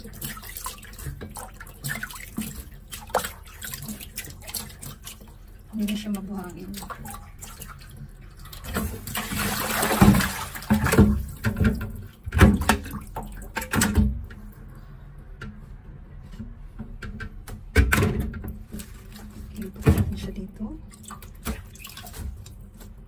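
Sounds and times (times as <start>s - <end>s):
water pouring into a sink: 0.0s - 14.1s.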